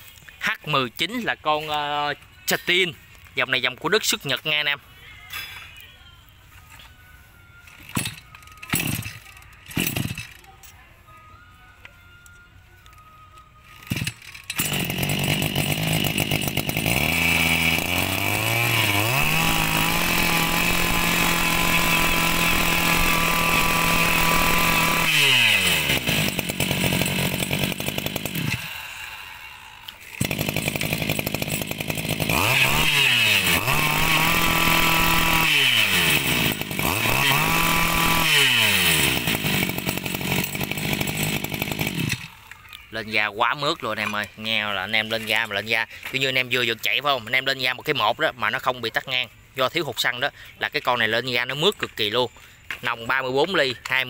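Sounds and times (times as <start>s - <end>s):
brush cutter engine revving: 7.7s - 10.5s, 13.8s - 49.1s.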